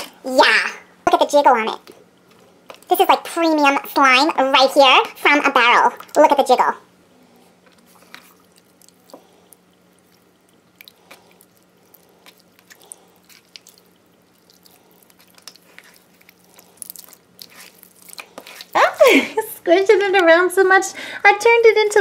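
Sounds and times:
slime squelching by hand: 0:07.6 - 0:19.5.

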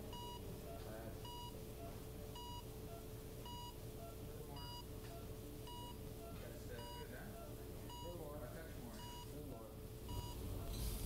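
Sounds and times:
patient monitor beeping: 0:00.0 - 0:08.3, 0:08.9 - 0:09.4, 0:10.0 - 0:10.8
faint steady hum: 0:00.0 - 0:11.0.

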